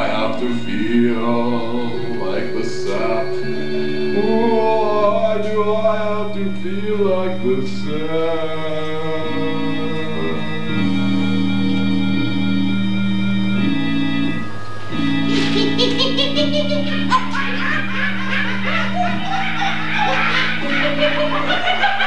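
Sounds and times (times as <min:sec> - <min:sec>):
person singing long notes: 0:00.0 - 0:12.0
sustained accompaniment chords: 0:00.0 - 0:22.0.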